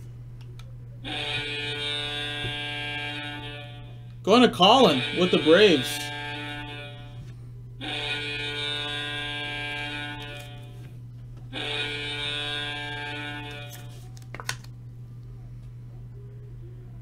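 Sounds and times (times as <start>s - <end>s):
low electrical hum: 0.0s - 17.0s
alarm buzzer: 1.0s - 14.0s.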